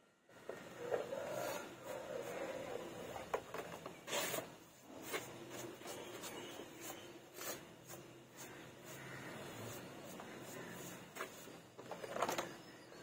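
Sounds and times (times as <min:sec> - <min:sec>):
brush rubbing on canvas: 0:04.1 - 0:11.6.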